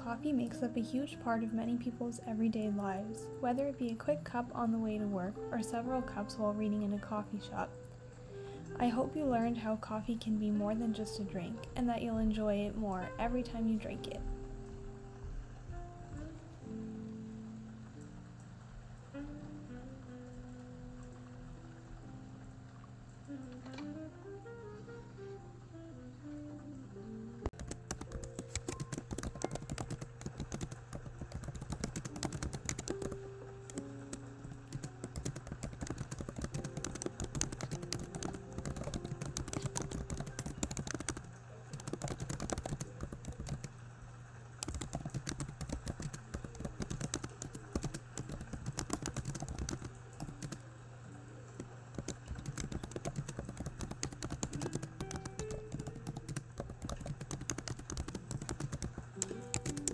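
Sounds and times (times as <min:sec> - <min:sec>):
fast keyboard typing: 0:27.5 - 0:43.7, 0:44.6 - 0:50.6, 0:51.9 - 0:59.9.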